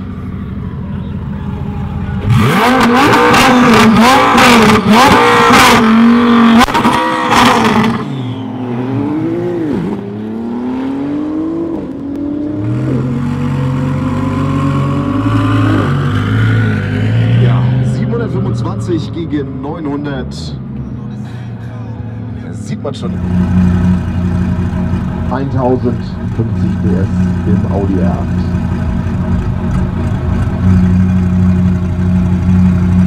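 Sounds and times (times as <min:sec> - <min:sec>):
engine idling: 0:00.0 - 0:04.2, 0:20.7 - 0:33.0
car engine revving: 0:00.0 - 0:33.0
car accelerating away: 0:02.2 - 0:21.1.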